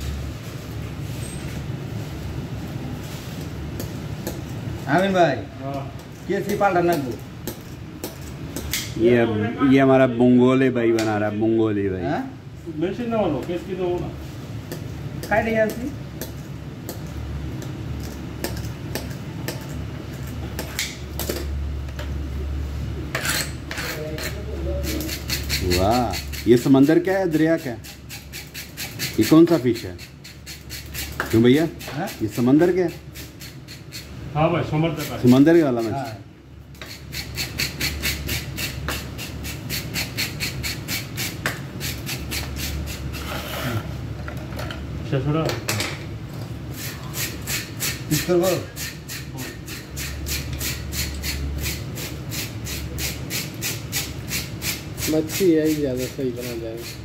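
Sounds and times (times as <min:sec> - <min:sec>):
fish scaler scraping scales: 0:23.1 - 0:31.2, 0:36.8 - 0:43.8.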